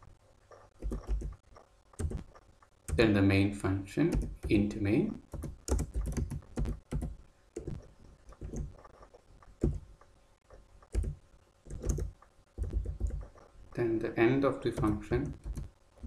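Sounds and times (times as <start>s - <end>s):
typing on computer keyboard: 0.7s - 1.4s, 2.0s - 3.1s, 4.1s - 4.7s, 5.3s - 9.9s, 10.8s - 13.4s, 14.7s - 15.7s.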